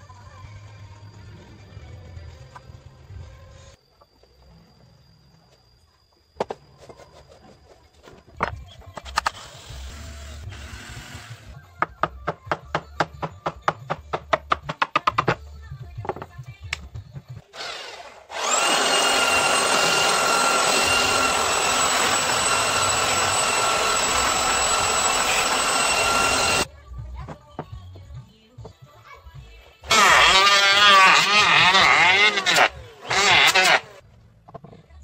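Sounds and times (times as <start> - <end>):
belt sander whining: 17.6 - 26.7, 29.9 - 34.0.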